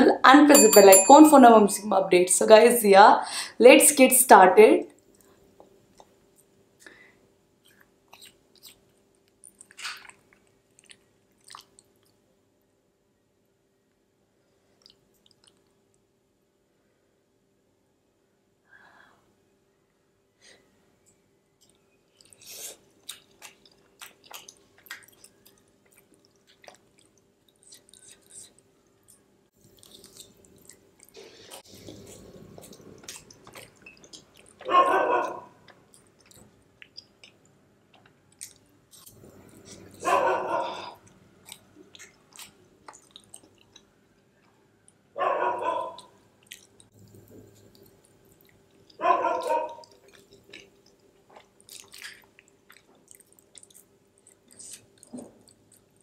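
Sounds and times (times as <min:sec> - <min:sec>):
faint steady hum: 0:00.0 - 0:56.0
chewing sounds: 0:07.6 - 0:12.2, 0:14.6 - 0:15.9, 0:21.1 - 0:56.0.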